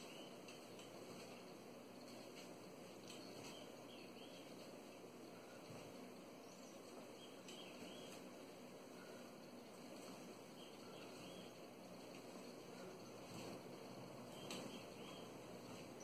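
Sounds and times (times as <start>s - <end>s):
faint steady hiss: 0.0s - 16.0s
faint high chirps: 10.5s - 11.8s, 14.2s - 16.0s.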